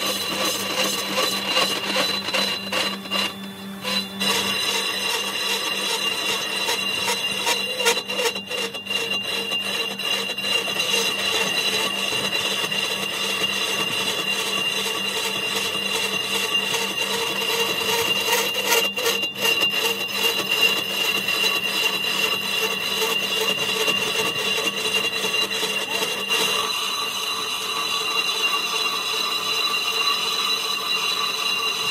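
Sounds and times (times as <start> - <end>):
high whine: 0.0 - 31.9
lathe tool scraping iron: 0.0 - 31.9.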